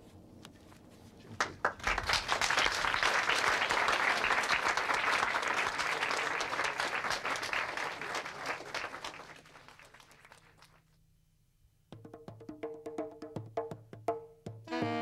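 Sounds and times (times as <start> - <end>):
audience applauding: 1.4 - 10.8.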